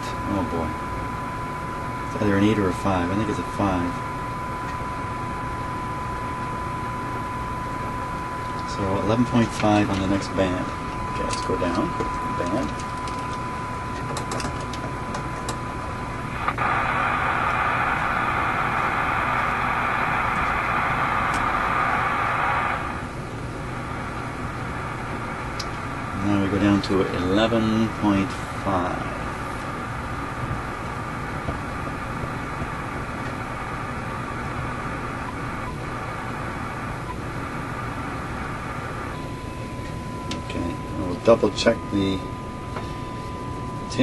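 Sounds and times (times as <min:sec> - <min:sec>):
steady test tone: 0:00.0 - 0:23.2, 0:23.9 - 0:44.0
radio static hiss: 0:00.0 - 0:44.0
radio click: 0:16.3 - 0:22.9.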